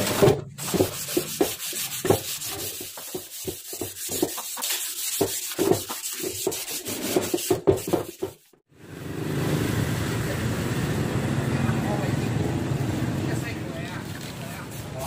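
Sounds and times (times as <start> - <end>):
sanding sponge rubbing metal: 0.1 - 8.6, 14.4 - 15.0.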